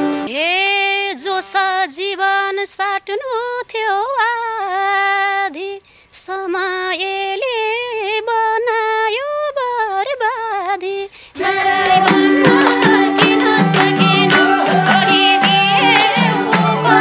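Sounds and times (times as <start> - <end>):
woman singing unaccompanied: 0.0 - 17.0
quick breath: 5.8 - 6.1, 11.1 - 11.4
flute: 11.4 - 17.0
steady drum beat: 11.4 - 17.0.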